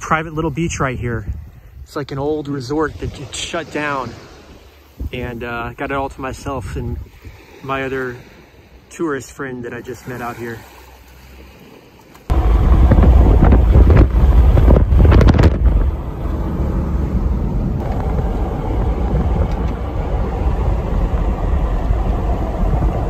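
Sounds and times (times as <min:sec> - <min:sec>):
wind buffeting microphone: 0:00.0 - 0:07.6, 0:12.3 - 0:23.0
road noise: 0:02.8 - 0:23.0.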